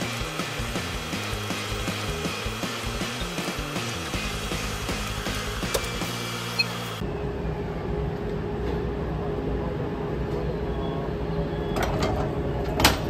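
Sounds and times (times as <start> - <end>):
train low rumble: 7.0 - 12.8.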